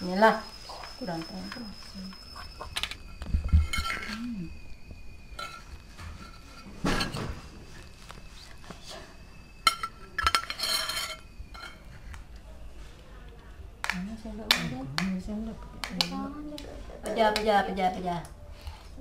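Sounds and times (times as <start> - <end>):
cutlery and dishes clinking: 9.6 - 11.9.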